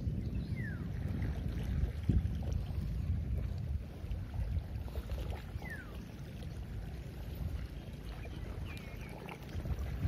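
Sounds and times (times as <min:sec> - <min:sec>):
wind rumble on microphone: 0:00.0 - 0:10.0.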